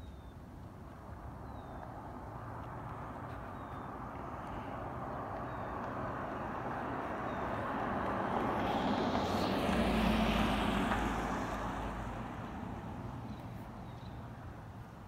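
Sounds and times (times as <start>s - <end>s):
diesel truck driving past: 4.4s - 13.4s.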